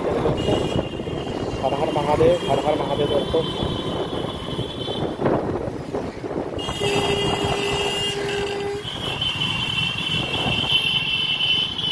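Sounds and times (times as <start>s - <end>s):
motorcycle riding rumble: 0.0s - 11.9s
vehicle horn: 0.3s - 1.6s, 6.6s - 11.9s
wind on microphone: 3.3s - 9.2s.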